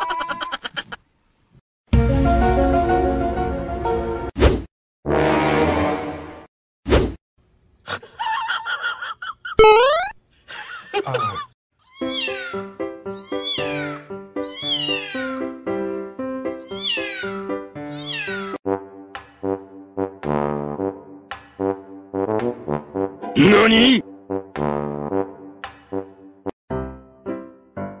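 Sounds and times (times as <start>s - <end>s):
cartoon sound effects: 9.6s - 10.2s
kitten meowing: 11.9s - 12.6s, 13.2s - 15.4s, 16.6s - 18.6s.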